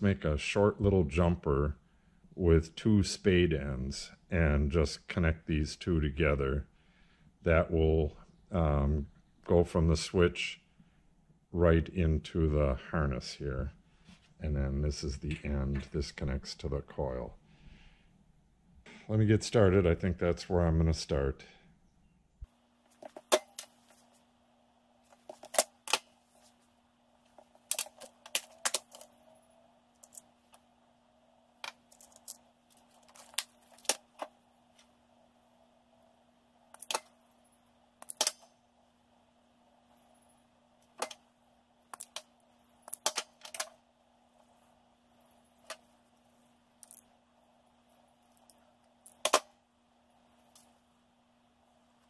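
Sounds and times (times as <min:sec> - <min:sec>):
faint steady hum: 0:00.0 - 0:52.0
wire stripper and crimper clicks: 0:36.8 - 0:37.2, 0:38.0 - 0:38.5.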